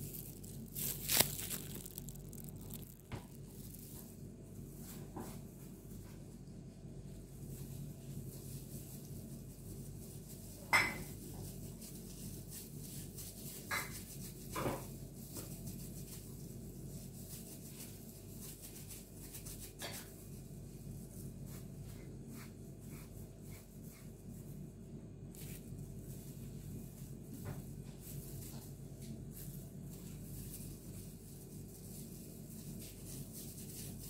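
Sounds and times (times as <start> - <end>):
low steady hum: 15.0 - 34.0.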